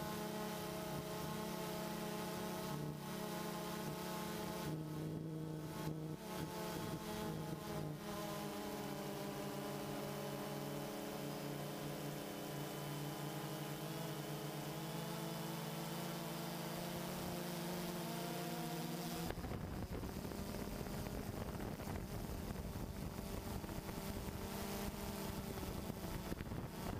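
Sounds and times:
drone propellers humming: 0.1s - 26.9s
wind rumble on microphone: 19.3s - 26.9s.

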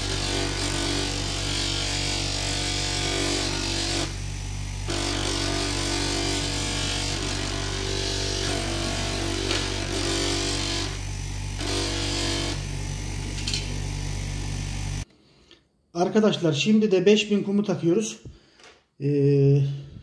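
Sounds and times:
bench grinder motor running: 0.0s - 15.0s.

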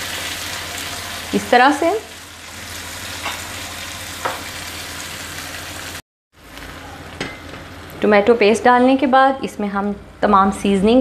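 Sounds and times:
vegetables sizzling in oil: 0.0s - 8.0s.

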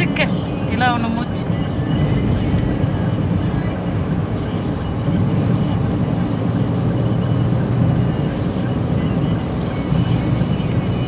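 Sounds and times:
vehicle rumbling in motion: 0.0s - 11.0s.

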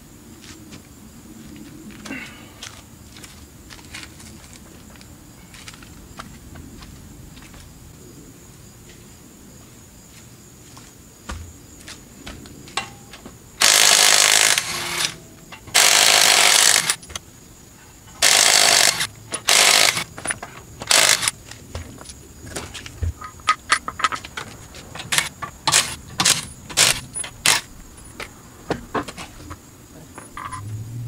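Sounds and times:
impact wrench bursts: 13.6s - 17.2s, 18.2s - 21.3s, 25.1s - 27.7s.

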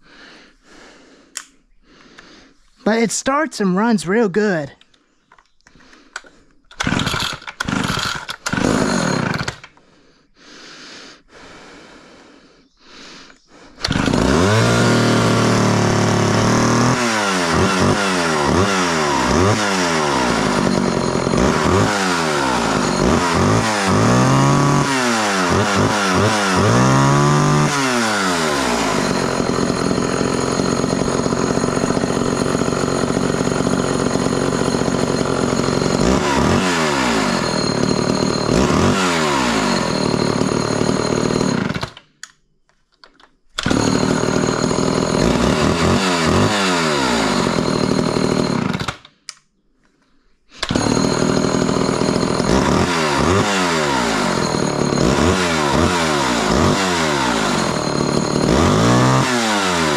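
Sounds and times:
starter cord pulls: 4.8s - 9.8s, 13.8s - 16.9s, 28.6s - 42.4s, 43.0s - 46.6s, 47.2s - 49.4s, 50.6s - 59.4s
chainsaw engine revving: 5.8s - 9.9s, 13.7s - 42.0s, 43.6s - 49.0s, 50.6s - 59.9s.

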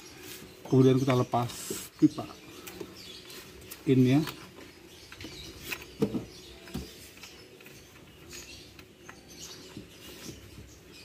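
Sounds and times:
birds chirping faintly: 0.0s - 11.0s.

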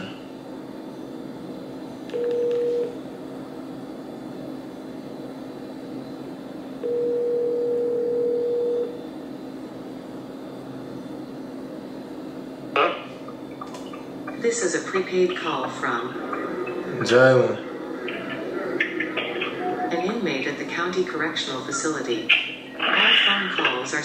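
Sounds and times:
telephone ringback tone: 2.1s - 3.0s, 6.8s - 9.0s.

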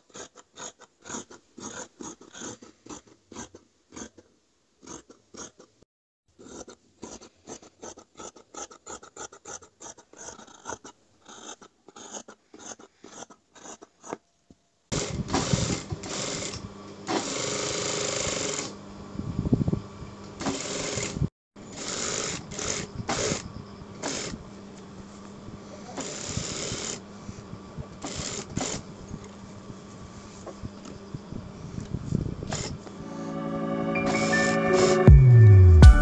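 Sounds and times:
shears snipping fabric: 6.4s - 14.2s, 24.0s - 24.8s, 25.8s - 27.0s, 28.0s - 28.9s
sewing machine running: 15.0s - 18.7s, 20.4s - 23.4s.

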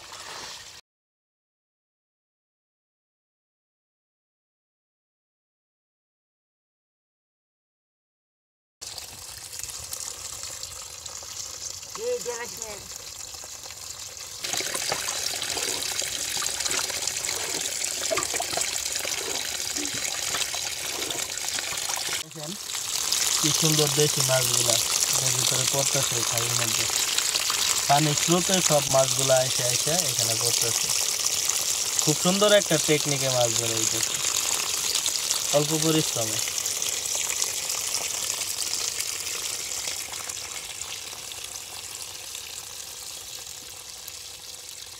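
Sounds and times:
water pouring and splashing: 0.0s - 0.8s, 8.8s - 44.9s
water splashing into fish trap: 14.4s - 22.2s.

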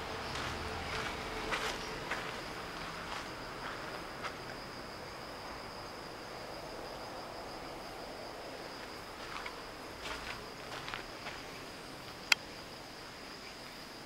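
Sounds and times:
high-pitched insect trill: 0.0s - 14.0s
faint footsteps: 0.2s - 4.6s, 8.8s - 12.3s.

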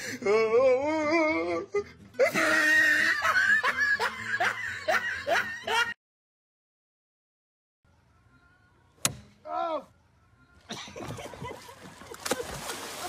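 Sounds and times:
person laughing heartily: 1.7s - 6.0s, 10.7s - 12.6s.

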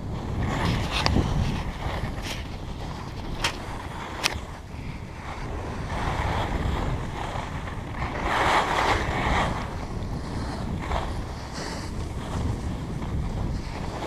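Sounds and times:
wind buffeting microphone: 0.0s - 14.0s
skis hissing over snow: 3.6s - 14.0s.

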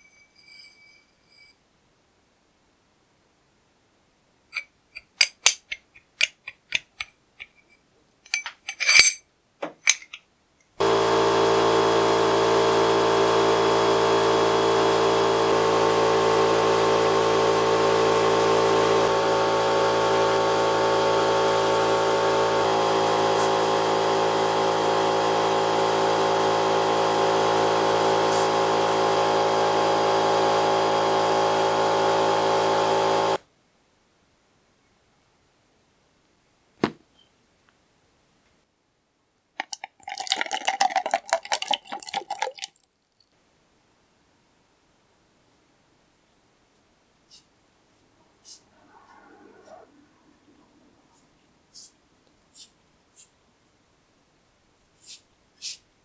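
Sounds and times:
machine hum: 10.8s - 33.4s
sandblasting gun hiss: 10.8s - 33.4s.

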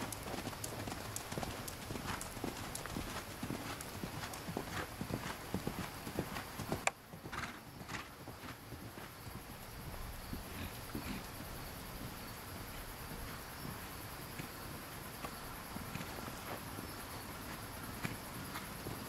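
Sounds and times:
horse hooves thudding on sand: 0.0s - 19.0s.

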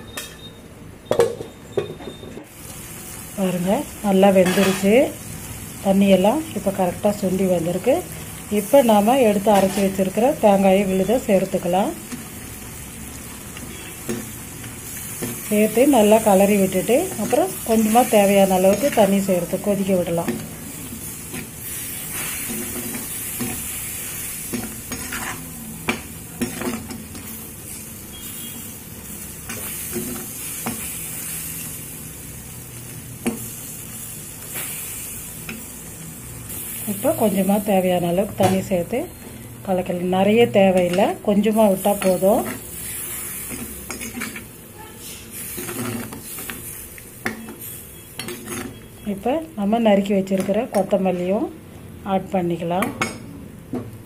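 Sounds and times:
curry hissing in pan: 2.5s - 49.0s
spatula scraping a pan: 24.5s - 25.6s, 41.8s - 48.9s.

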